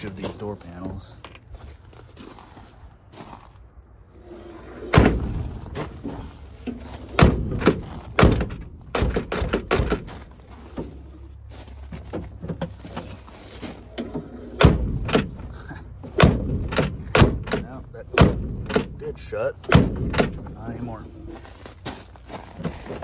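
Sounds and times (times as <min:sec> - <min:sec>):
car door slamming shut: 0:04.8 - 0:05.9, 0:07.1 - 0:10.2, 0:14.4 - 0:15.5, 0:16.1 - 0:19.0, 0:19.6 - 0:20.6.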